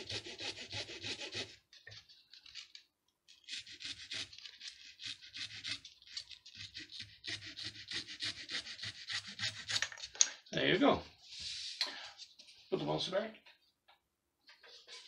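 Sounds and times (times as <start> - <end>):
hacksaw cutting wood: 0.0 - 1.6, 3.4 - 10.0.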